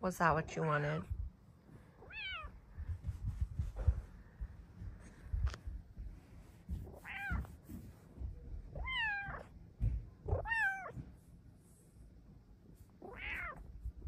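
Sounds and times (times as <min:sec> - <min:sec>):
cat meowing: 0:02.0 - 0:02.6, 0:07.0 - 0:07.5, 0:08.7 - 0:09.5, 0:10.3 - 0:11.0, 0:13.0 - 0:13.7
low rustling and thumps: 0:02.6 - 0:11.3.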